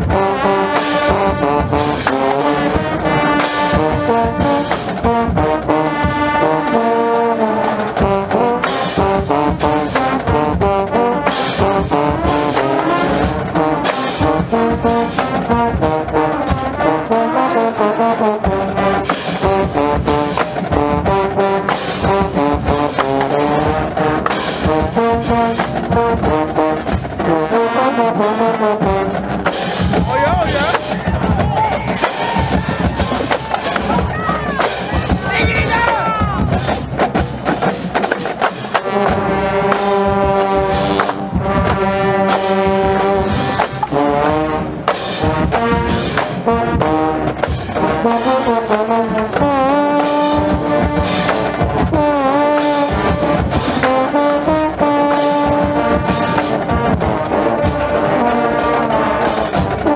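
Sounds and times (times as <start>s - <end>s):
trombones playing brass fanfare: 0.0s - 37.0s, 38.4s - 59.9s
sharp percussion hits: 29.1s - 59.9s.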